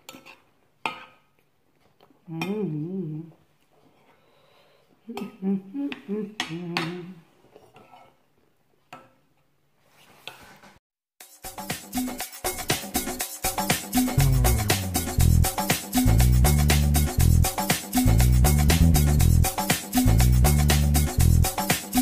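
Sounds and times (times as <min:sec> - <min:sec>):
woman humming: 0:02.2 - 0:03.4, 0:05.0 - 0:07.3.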